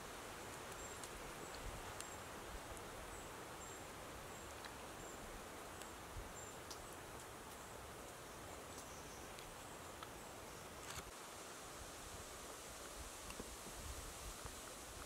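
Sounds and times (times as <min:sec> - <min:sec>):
outdoor background hiss: 0:00.0 - 0:15.0
faint ticks: 0:00.5 - 0:02.9, 0:05.8 - 0:10.2.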